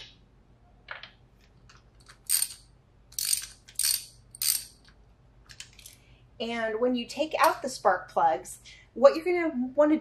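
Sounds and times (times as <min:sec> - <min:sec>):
ratchet wrench clicking: 0:02.0 - 0:04.8.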